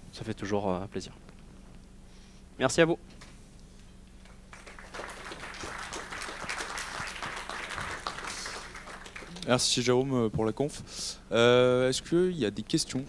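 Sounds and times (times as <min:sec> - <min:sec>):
audience applauding: 0:04.2 - 0:09.7.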